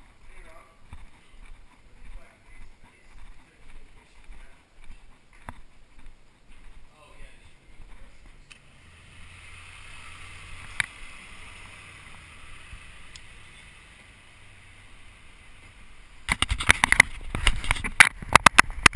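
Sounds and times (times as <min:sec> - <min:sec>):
street noise: 0:00.0 - 0:18.9
loud irregular knocks and crackles: 0:16.3 - 0:18.9.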